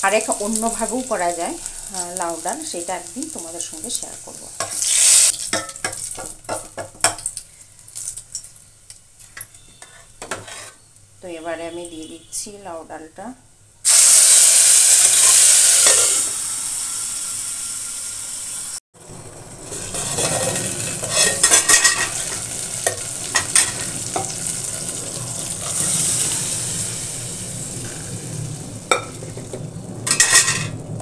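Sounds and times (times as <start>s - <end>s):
loud sizzle: 0.0s - 9.3s, 13.8s - 31.0s
sizzling and bubbling: 0.0s - 12.0s, 13.8s - 31.0s.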